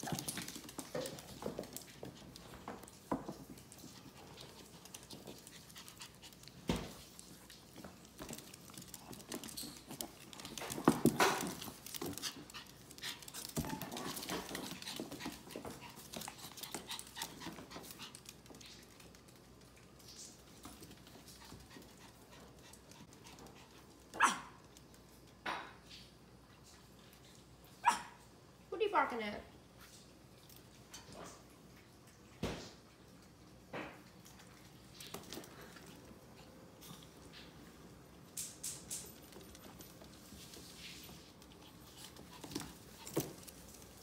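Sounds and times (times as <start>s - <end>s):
animals scuffling: 0.0s - 25.2s, 34.1s - 44.0s.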